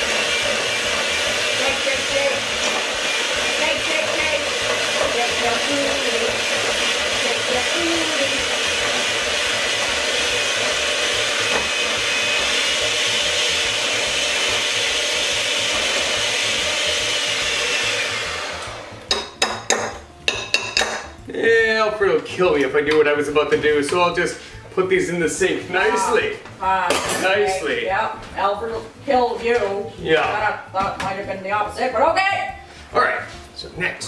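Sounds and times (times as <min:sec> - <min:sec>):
electric hand mixer running: 0:00.0 - 0:21.0, 0:25.4 - 0:26.4.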